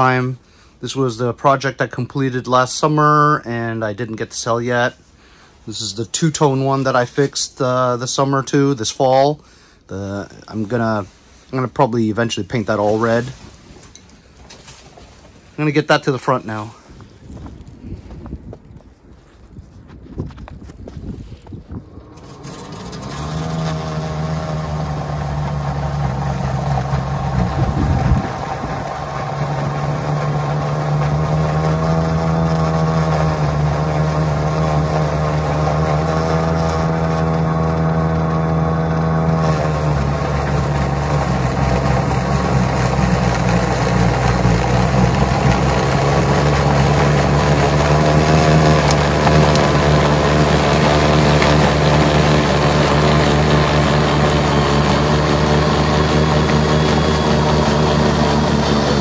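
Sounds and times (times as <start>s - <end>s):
snowblower throwing wet snow: 10.5s - 13.9s, 21.8s - 59.0s.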